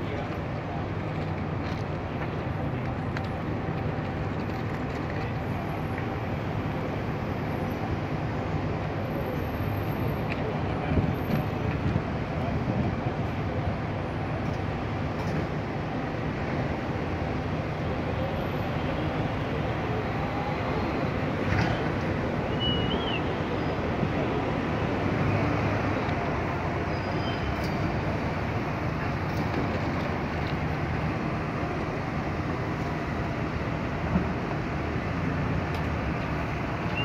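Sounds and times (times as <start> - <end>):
city traffic hum: 0.0 - 37.0.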